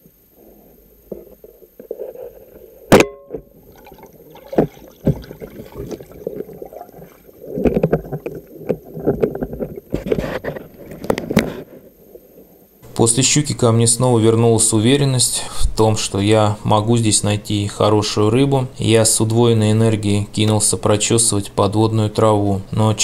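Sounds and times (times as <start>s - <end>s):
underwater knocks: 3.3s - 11.6s
churning water: 3.5s - 11.2s.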